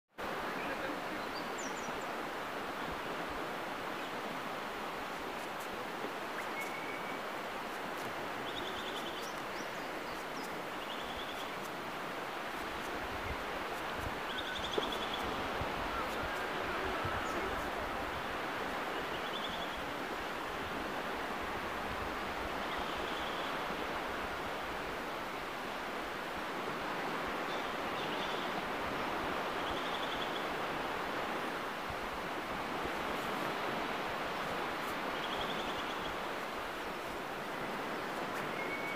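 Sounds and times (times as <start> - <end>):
surf washing on beach: 0.2 - 38.9
small bird calls: 6.3 - 7.3, 8.4 - 11.8, 13.7 - 18.2, 35.1 - 37.2.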